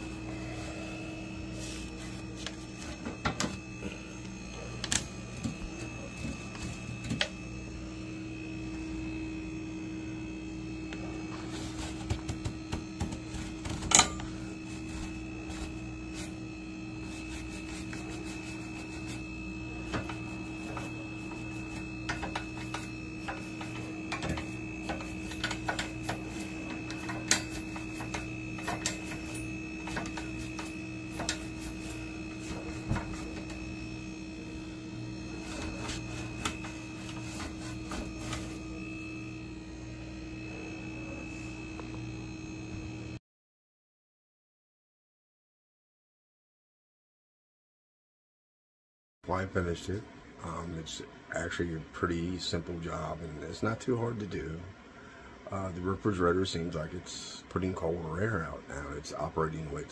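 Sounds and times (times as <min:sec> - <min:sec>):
steady electrical hum: 0:00.0 - 0:43.2
toothbrush scrubbing metal coils: 0:11.5 - 0:33.9, 0:34.7 - 0:38.8.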